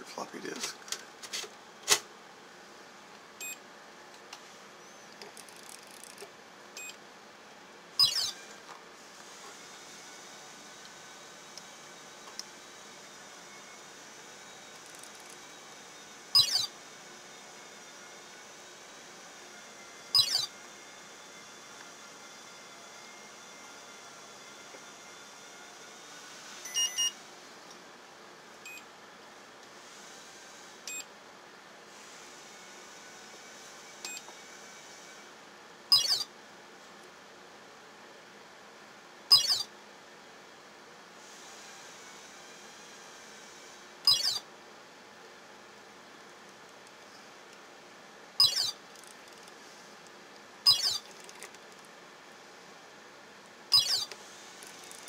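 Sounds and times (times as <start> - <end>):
steady room hiss: 0.0 - 5.3
control panel beeps: 48.4 - 48.7, 53.8 - 54.0.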